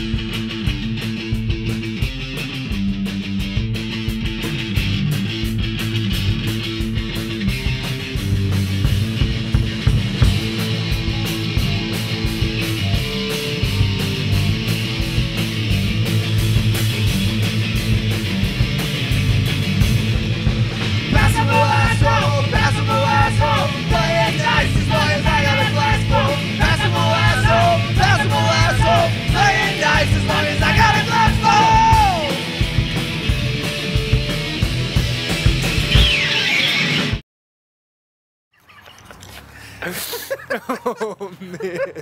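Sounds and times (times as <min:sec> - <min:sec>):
punk rock music: 0:00.0 - 0:37.2
yelled vocals: 0:20.7 - 0:33.2.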